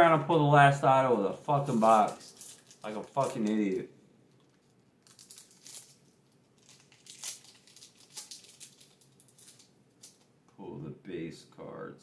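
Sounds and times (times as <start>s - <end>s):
wrapper crinkling and ripping: 1.6s - 10.3s.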